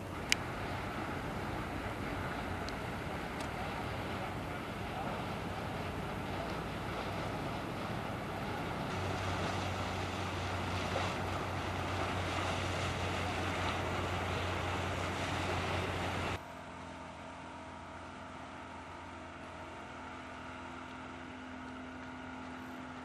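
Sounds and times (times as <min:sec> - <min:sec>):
water noise: 0:00.0 - 0:16.4
motorboat engine running: 0:00.0 - 0:23.0
wind: 0:00.0 - 0:23.0.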